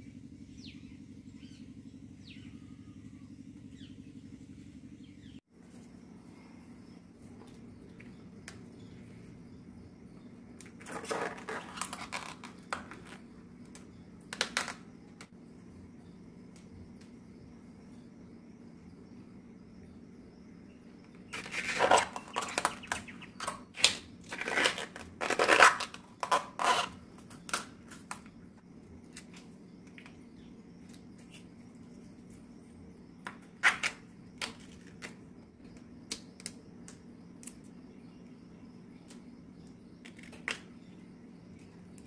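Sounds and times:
plant bracts tearing by hand: 0:21.4 - 0:28.2.

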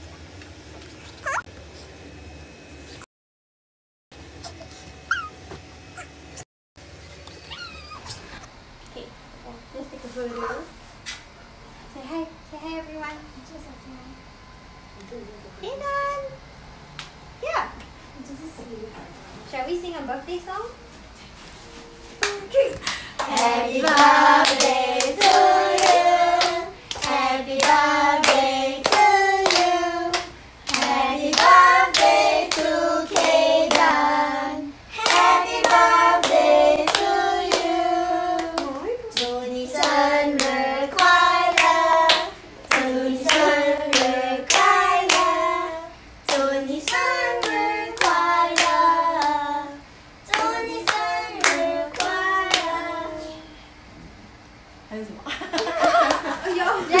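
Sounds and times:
people singing together: 0:23.2 - 0:53.4.

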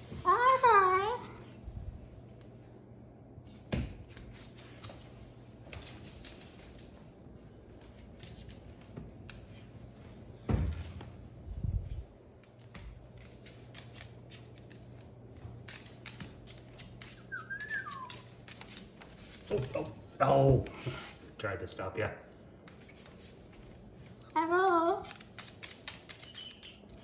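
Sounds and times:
bird claws clicking on wood floor: 0:25.0 - 0:27.0.

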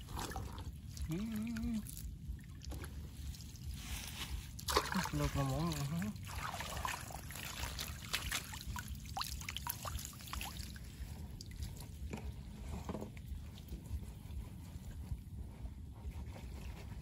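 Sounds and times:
water splashing off fish trap: 0:04.6 - 0:10.8.

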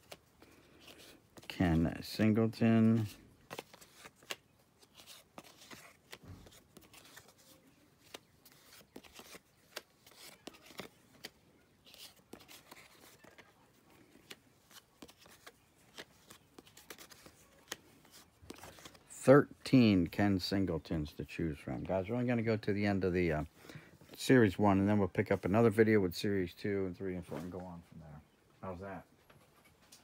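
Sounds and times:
cardboard cards clicking and rustling: 0:00.0 - 0:19.2.

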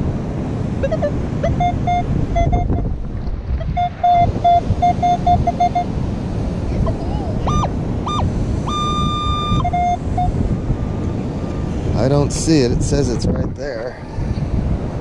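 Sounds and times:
wind rumble on microphone: 0:00.0 - 0:15.0
metal detector beeps: 0:00.8 - 0:02.8, 0:03.8 - 0:05.9, 0:07.5 - 0:10.4.

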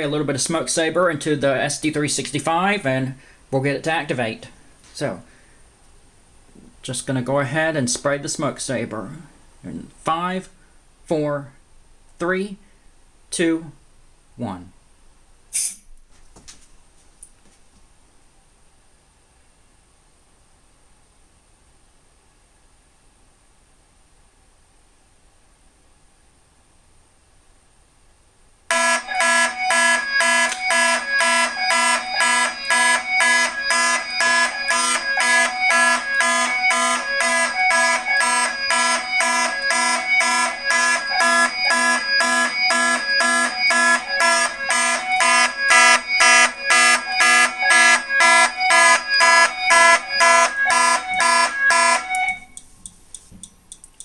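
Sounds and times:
fire alarm horns pulsing: 0:28.7 - 0:52.6.

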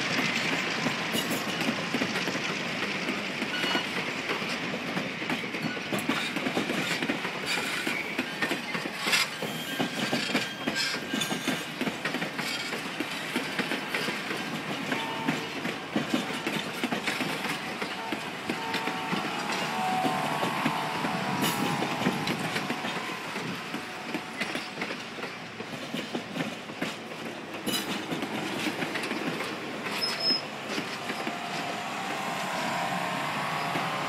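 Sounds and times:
train wheels rumbling on rails: 0:00.0 - 0:34.0
faint wheel squeal: 0:07.5 - 0:11.4, 0:29.9 - 0:30.5.

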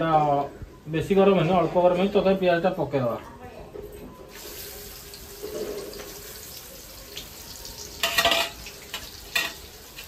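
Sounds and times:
onion sizzling in hot oil: 0:04.3 - 0:10.0.

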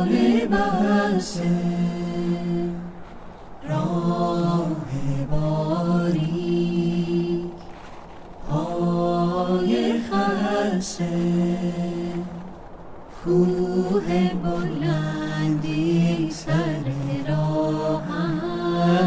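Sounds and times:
person singing ornamented long notes: 0:13.2 - 0:19.0.

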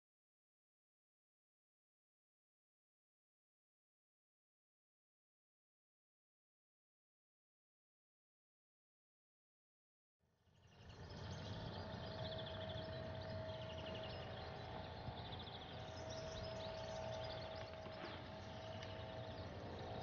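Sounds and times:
birds trilling: 0:10.7 - 0:20.0
thin steady hum: 0:10.7 - 0:20.0
steady low rumble: 0:10.9 - 0:20.0.

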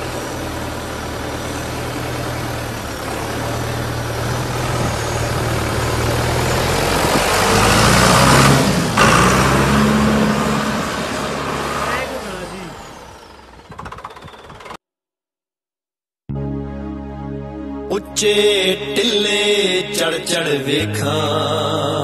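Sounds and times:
tractor diesel engine running: 0:00.0 - 0:14.8.

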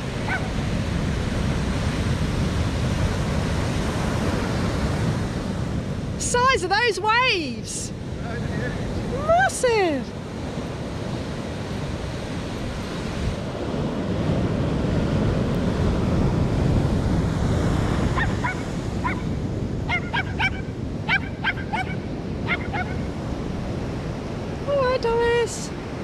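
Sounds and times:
ocean waves breaking: 0:00.0 - 0:26.0
bird calling sharply: 0:19.9 - 0:23.0.

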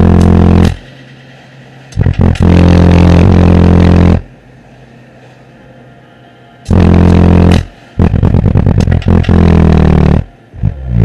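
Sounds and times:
car subwoofers playing deep bass: 0:00.0 - 0:00.9, 0:02.0 - 0:04.3, 0:06.7 - 0:11.0.

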